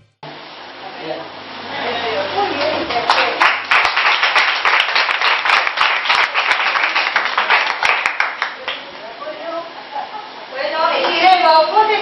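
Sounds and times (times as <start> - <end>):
audience applauding: 2.8 - 8.9.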